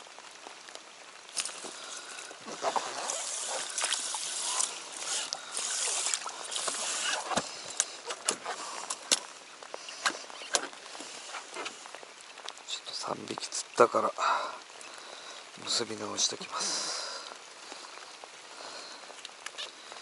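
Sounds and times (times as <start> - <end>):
rain pattering on water: 0.0 - 20.0
water sloshing in a cooler: 1.4 - 9.3.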